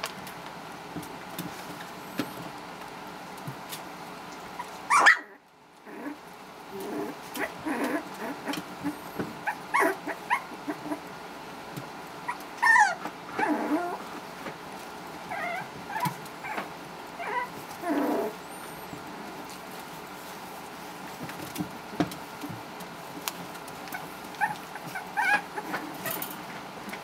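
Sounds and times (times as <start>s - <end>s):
puppies whimpering and yipping: 4.5s - 11.1s, 12.3s - 14.1s, 15.3s - 19.1s, 23.9s - 26.3s.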